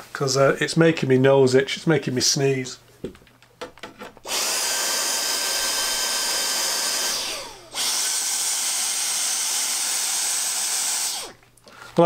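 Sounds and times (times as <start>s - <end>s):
vacuum cleaner running: 4.2s - 11.4s.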